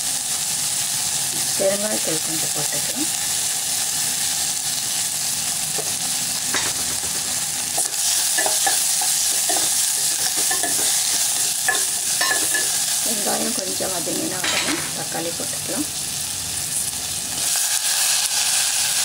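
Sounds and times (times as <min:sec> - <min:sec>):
vegetables sizzling in hot oil: 0:00.0 - 0:19.0
spoon knocking and scraping pot: 0:05.8 - 0:12.8
spoon stirring: 0:06.6 - 0:13.0.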